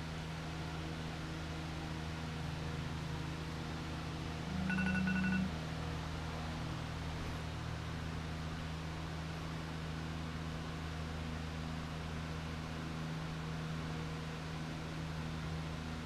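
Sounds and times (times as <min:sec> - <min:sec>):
low shop hum: 0:00.0 - 0:16.0
faint electronic beep: 0:04.5 - 0:05.5
phone vibrating on bench: 0:04.5 - 0:05.5.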